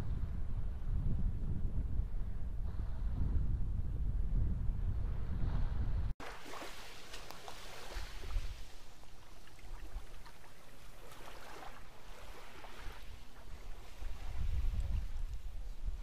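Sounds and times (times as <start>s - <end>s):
wind buffeting microphone: 0.0s - 6.2s, 7.6s - 9.0s, 9.6s - 16.0s
water lapping on pebbles: 6.2s - 14.9s.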